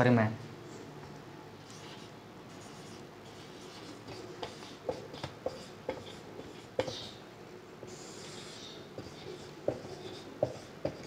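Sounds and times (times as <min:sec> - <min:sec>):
marker pen writing on whiteboard: 0:01.6 - 0:07.2, 0:07.8 - 0:11.0.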